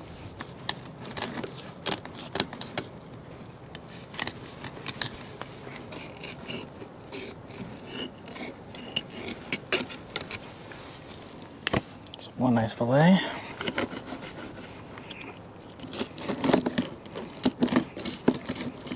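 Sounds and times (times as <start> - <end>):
knife scraping fish: 4.1 - 11.3, 13.5 - 18.9.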